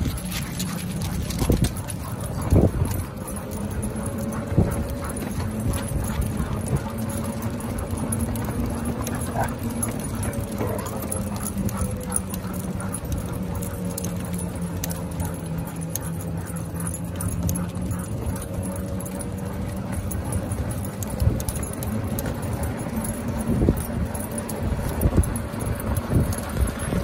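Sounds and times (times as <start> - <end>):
collar tags jingling: 0.0 - 27.0
paws pattering on pavement: 0.0 - 27.0
steady low hum: 0.0 - 27.0.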